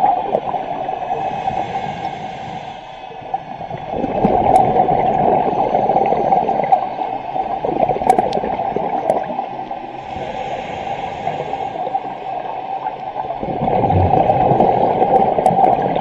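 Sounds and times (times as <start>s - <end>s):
underwater regulator bubbles gurgling: 0.0s - 16.0s.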